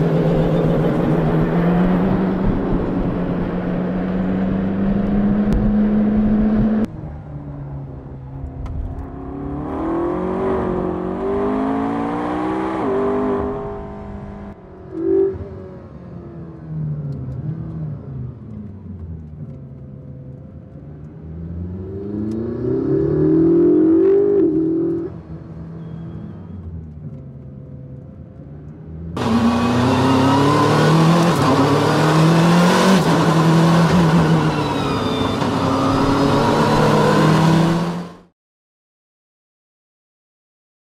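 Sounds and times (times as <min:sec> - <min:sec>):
car engine revving: 0:00.0 - 0:06.9, 0:08.8 - 0:38.3.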